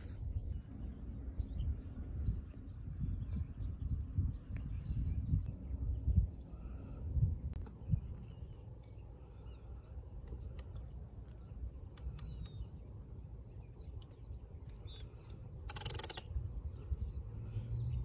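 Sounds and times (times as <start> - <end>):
wind rumble on microphone: 0.0 - 9.0, 16.2 - 18.0
faint clicks: 10.2 - 12.6, 14.7 - 16.3
rattling hiss: 15.7 - 16.2.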